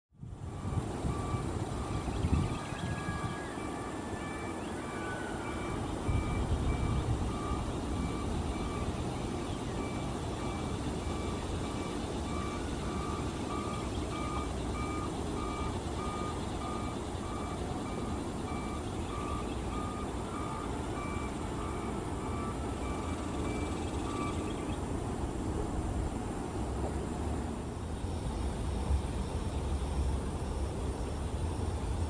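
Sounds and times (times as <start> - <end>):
electronic beeping: 0.5 - 24.8.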